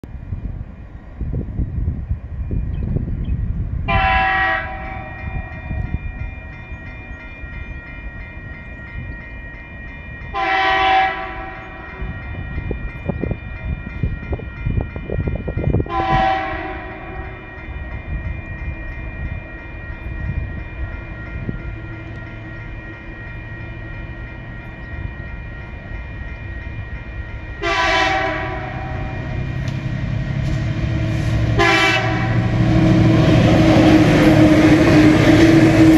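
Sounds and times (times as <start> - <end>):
locomotive horn blasts: 3.9 - 5.5, 10.3 - 11.8, 15.8 - 17.4, 27.6 - 29.4, 30.4 - 35.9
locomotive engine rumble: 15.7 - 35.9.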